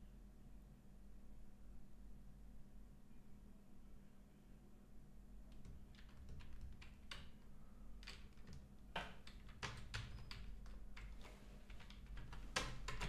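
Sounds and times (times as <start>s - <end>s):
computer keyboard typing: 5.5s - 13.0s.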